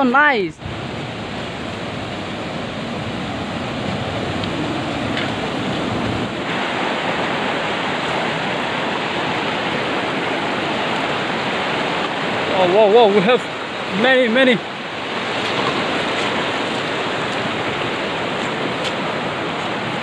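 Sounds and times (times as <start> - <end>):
river rapids rushing over rocks: 0.0 - 20.0.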